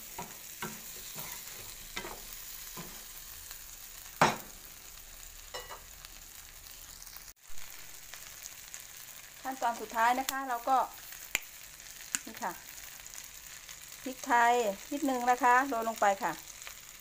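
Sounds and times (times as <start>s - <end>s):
spatula striking a pan: 0.0s - 3.1s, 4.2s - 4.6s, 5.5s - 5.9s
shrimp sizzling in a frying pan: 0.0s - 17.0s.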